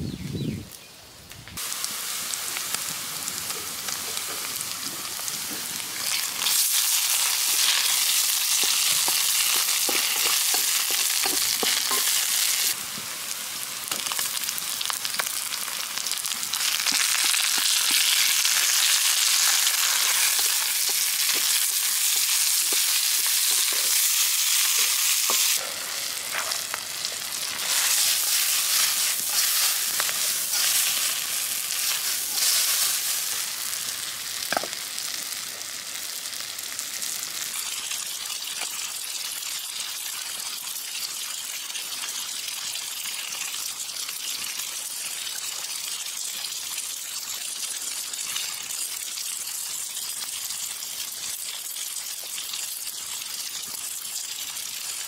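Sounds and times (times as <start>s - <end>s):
vegetables sizzling in hot oil: 1.2s - 55.0s
metal spatula scraping wok: 7.4s - 12.7s.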